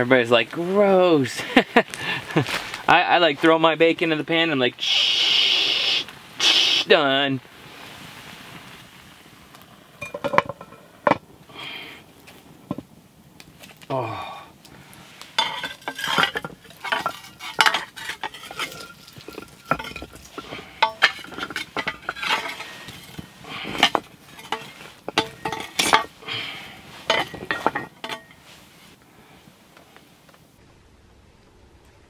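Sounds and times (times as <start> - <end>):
metal utensil clinking on cast iron: 10.0 - 10.8, 15.4 - 26.2, 27.0 - 28.4.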